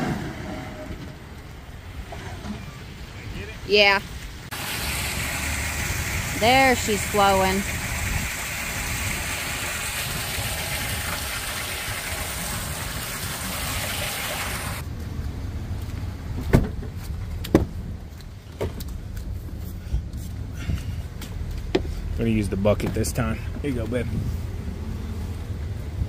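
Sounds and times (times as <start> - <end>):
low engine rumble: 0.0 - 26.0
water rushing through drain grate: 4.5 - 14.8.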